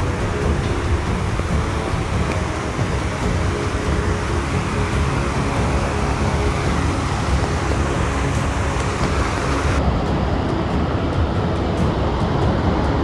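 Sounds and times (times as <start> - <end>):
stream rushing over rocks: 0.0 - 9.8.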